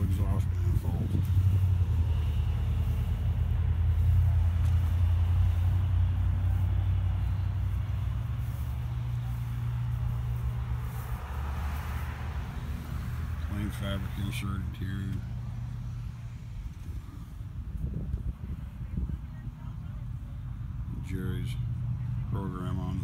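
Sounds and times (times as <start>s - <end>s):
engine idling rumble: 0.0s - 23.0s.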